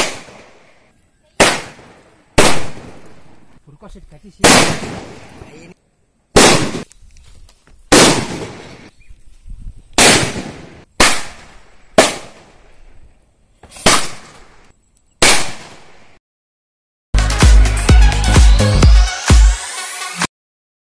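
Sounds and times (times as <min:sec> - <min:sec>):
firecrackers exploding: 0:00.0 - 0:00.7, 0:01.4 - 0:03.3, 0:04.4 - 0:05.4, 0:06.3 - 0:06.9, 0:07.9 - 0:08.9, 0:10.0 - 0:12.6, 0:13.7 - 0:14.6
upbeat electronic music: 0:17.2 - 0:20.3.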